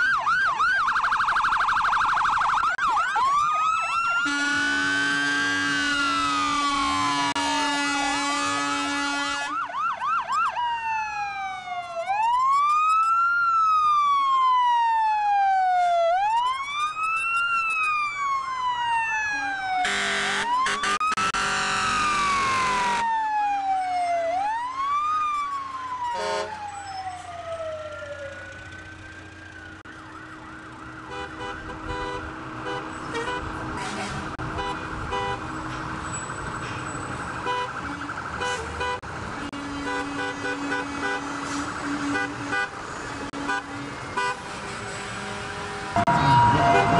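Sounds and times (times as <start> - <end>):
fire engine siren wailing: 0.0 - 46.9
loud horn blast: 4.2 - 9.6, 19.8 - 23.0, 26.2 - 26.6, 31.1 - 35.4, 38.4 - 46.9.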